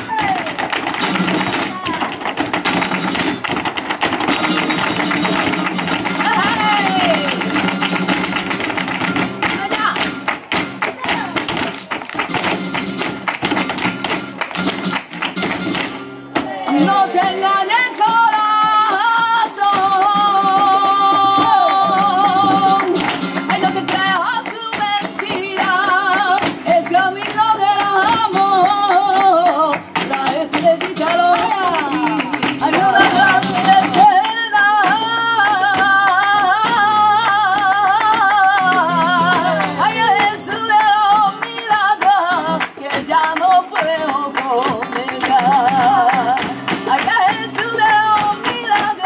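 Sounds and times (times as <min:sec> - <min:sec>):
acoustic guitar: 0:00.0 - 0:49.0
dance footwork stamping: 0:00.0 - 0:49.0
sharp handclaps: 0:00.1 - 0:16.0, 0:17.8 - 0:49.0
woman singing: 0:04.3 - 0:08.6, 0:16.4 - 0:49.0.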